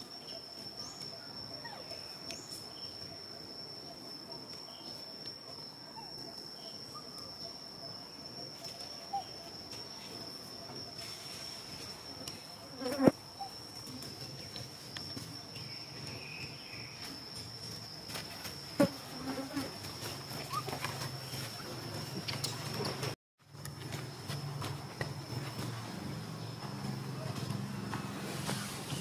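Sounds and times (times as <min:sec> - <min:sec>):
insect drone: 0:00.0 - 0:29.0.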